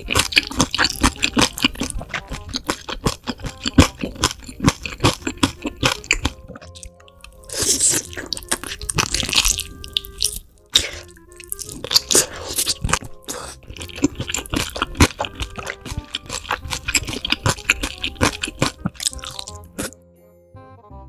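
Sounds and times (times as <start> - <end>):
crunching and chewing fried chicken: 0.0 - 20.0
soft music with chime notes: 5.7 - 13.9, 18.8 - 21.0.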